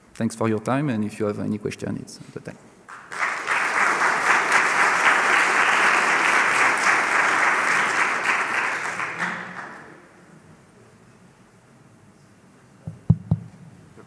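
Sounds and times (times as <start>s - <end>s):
audience applauding: 2.9s - 10.1s.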